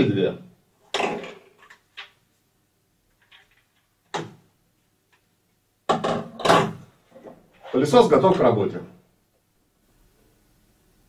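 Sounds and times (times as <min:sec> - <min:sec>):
plastic tubes knocking and clattering: 0:05.9 - 0:07.4.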